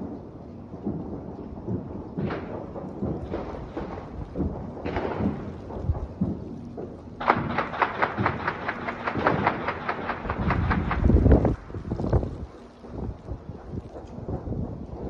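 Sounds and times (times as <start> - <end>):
distant gunshots: 2.2 - 12.3
rapid string of shots: 2.2 - 14.6.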